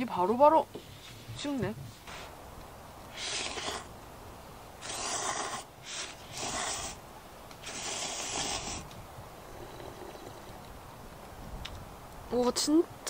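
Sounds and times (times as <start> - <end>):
person slurping noodles: 3.1 - 3.9, 4.8 - 7.0, 7.6 - 8.8.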